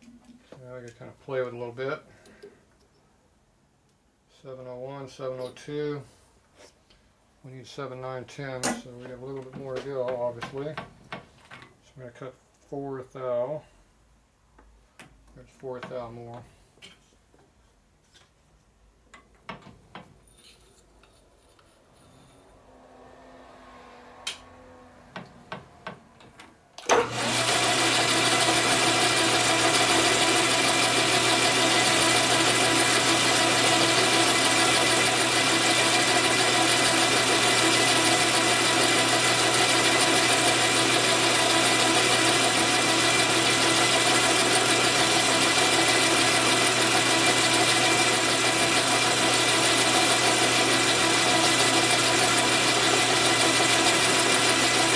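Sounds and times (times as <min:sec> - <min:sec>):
metal lathe humming and whining: 0:27.0 - 0:54.9.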